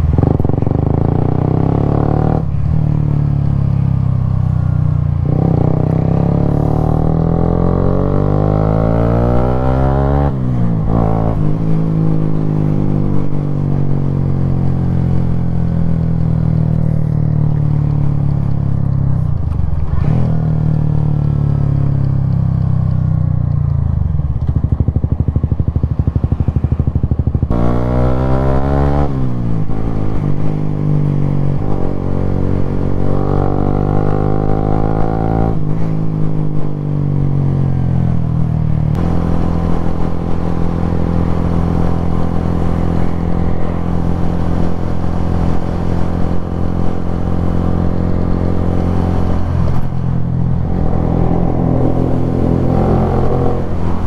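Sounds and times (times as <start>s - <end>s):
motorcycle engine running: 0.0s - 35.1s, 35.7s - 54.0s
wind rushing: 48.5s - 54.0s.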